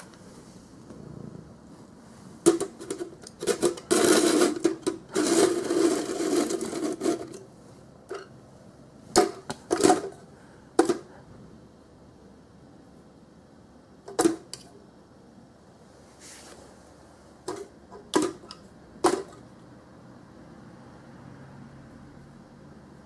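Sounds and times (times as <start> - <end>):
scraping and rattling: 2.4 - 7.5, 9.2 - 10.2.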